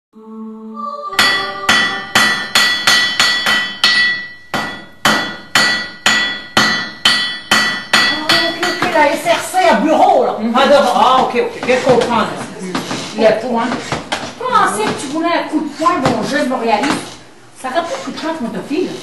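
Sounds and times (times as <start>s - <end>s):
hammer striking an anvil: 1.2s - 9.0s.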